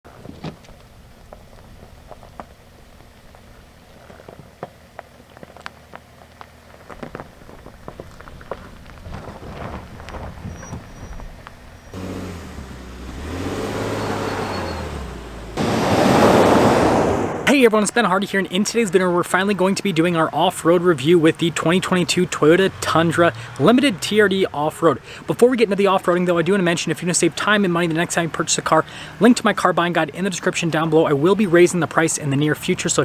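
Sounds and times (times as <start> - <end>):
clicks and crackles: 0.2 - 11.6
pickup truck engine running: 4.9 - 15.8.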